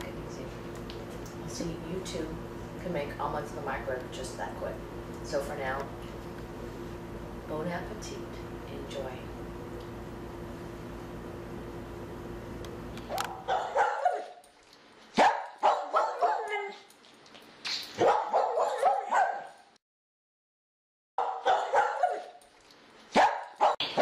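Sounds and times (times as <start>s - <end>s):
dog yipping and barking: 13.1s - 14.4s, 15.2s - 16.9s, 18.0s - 19.6s, 21.2s - 22.4s, 23.1s - 24.0s.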